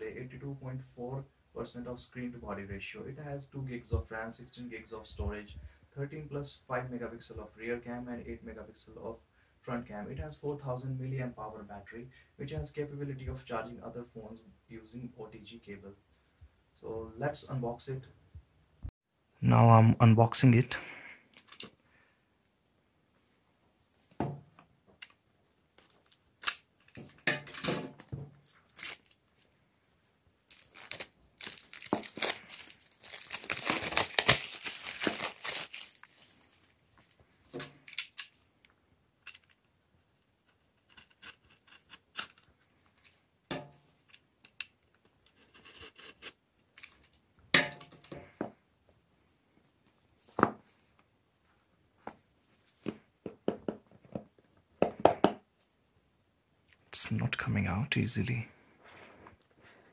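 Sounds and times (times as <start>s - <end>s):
plastic wrap rustling and crinkling: 25.4s - 27.2s, 28.0s - 37.2s
plastic wrap being slit: 28.5s - 29.2s, 30.5s - 36.7s.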